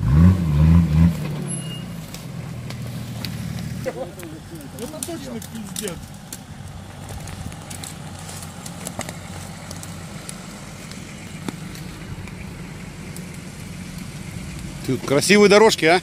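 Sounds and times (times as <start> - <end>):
vehicle engine running at low revs: 0.0 - 16.0
sharp clicks and cracks: 2.1 - 16.0.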